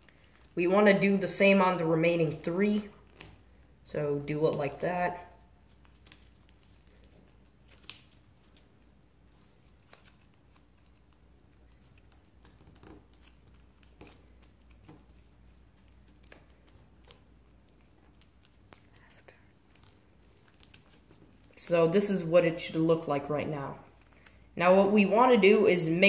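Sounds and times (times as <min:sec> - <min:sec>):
paper folding clicks and rustles: 0:05.6 - 0:21.6.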